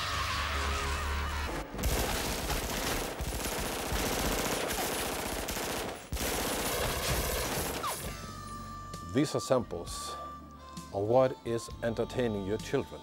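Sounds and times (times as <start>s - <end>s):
rapid pistol gunfire: 1.7s - 8.1s.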